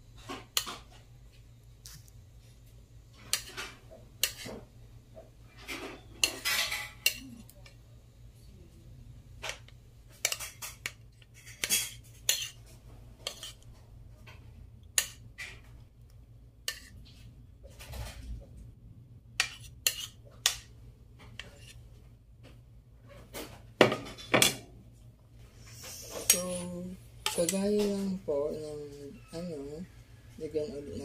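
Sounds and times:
utensil scraping: 10.2 - 13.8, 16.7 - 18.4, 19.4 - 21.8.

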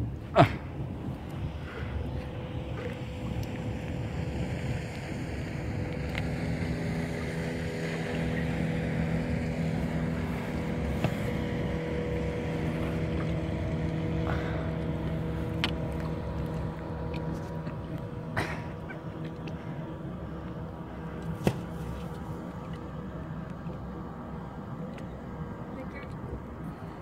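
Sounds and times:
motorboat engine humming: 0.0 - 27.0.

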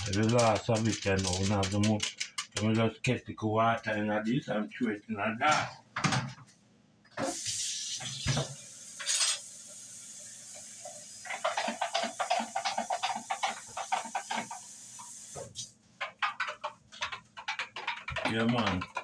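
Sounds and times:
irregular clicking rattle: 0.0 - 2.8, 16.0 - 19.0
pressure cooker steam hiss: 7.2 - 15.7.

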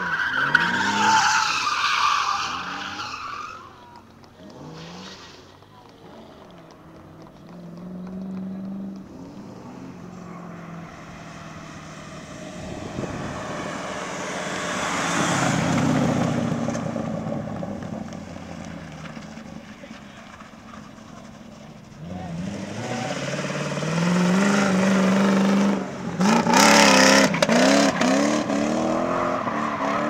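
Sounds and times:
tyre noise sliding: 0.0 - 23.5
car engine revving: 0.0 - 30.0.

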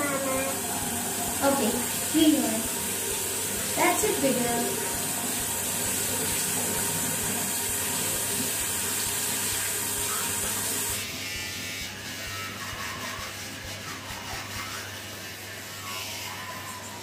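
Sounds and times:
tap water running into basin: 0.0 - 11.0.

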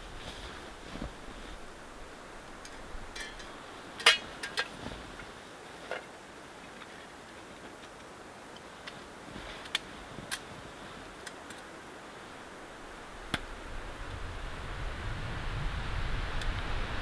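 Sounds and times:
camping gear clicking and clinking: 0.0 - 12.6.

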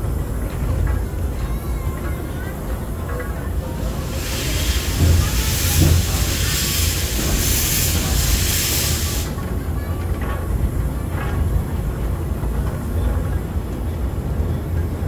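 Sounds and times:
train rumbling on rails: 0.0 - 15.0
steam locomotive hissing steam: 3.5 - 9.8.

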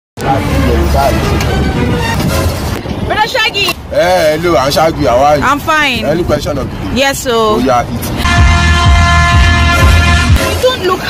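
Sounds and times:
heavy bass thumps: 8.2 - 10.7
horn-like blast: 8.2 - 11.0.

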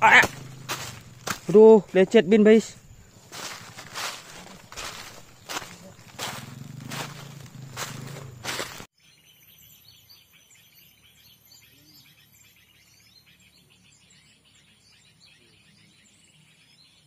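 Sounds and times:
footsteps crunching dry leaves: 0.0 - 8.9
small birds chirping: 0.0 - 17.0.

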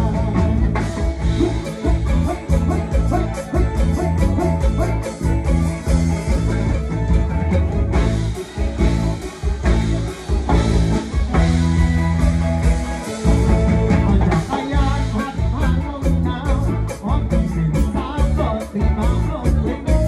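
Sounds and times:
man singing: 0.0 - 5.3, 13.9 - 20.0
live rock band playing: 0.0 - 20.0.

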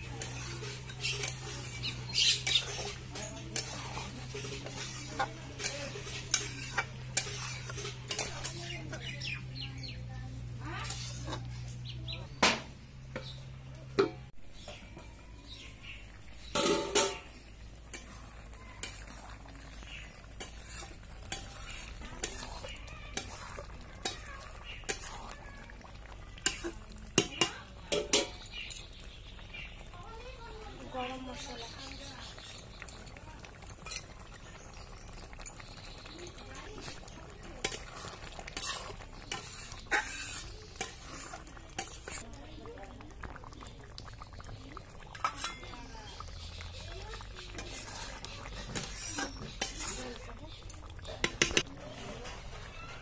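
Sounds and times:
metal spatula scraping iron pot: 0.0 - 10.0, 10.6 - 12.6, 15.8 - 25.5, 26.4 - 28.9, 33.8 - 34.4, 36.7 - 42.2, 45.1 - 53.0.

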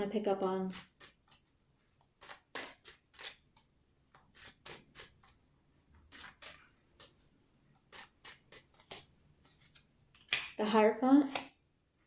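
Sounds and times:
cards being shuffled: 6.1 - 7.2, 7.8 - 10.6, 11.3 - 11.5.

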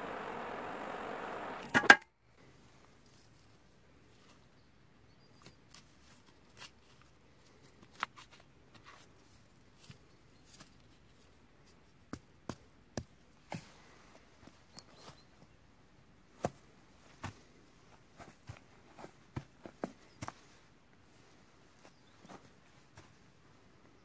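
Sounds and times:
cardboard rustling on leafy ground: 5.3 - 11.8.

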